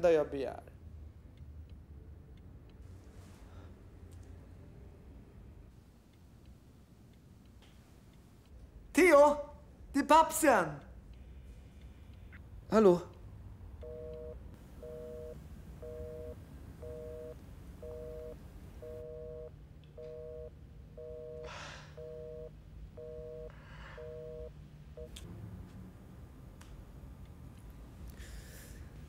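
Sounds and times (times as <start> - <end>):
telephone busy signal beeping: 13.8 - 25.2.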